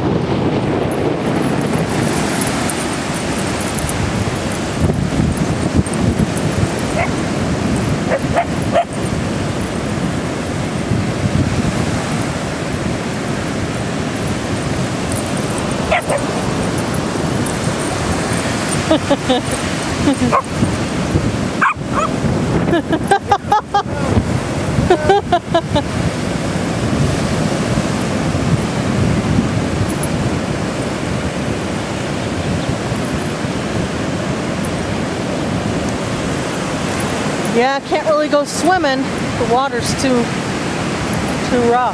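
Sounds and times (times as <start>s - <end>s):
surf and wind rushing: 0.0s - 41.9s
dog barking: 6.9s - 7.2s, 8.1s - 9.0s, 15.9s - 16.4s, 20.2s - 20.5s, 21.6s - 22.2s.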